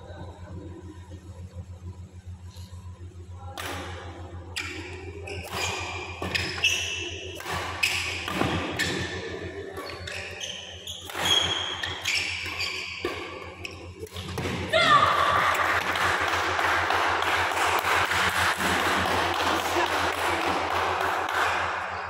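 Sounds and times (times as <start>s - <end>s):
rackets striking shuttlecock: 3.6s - 10.4s, 11.0s - 14.7s
shoes squeaking on court: 4.6s - 9.2s, 9.8s - 14.4s.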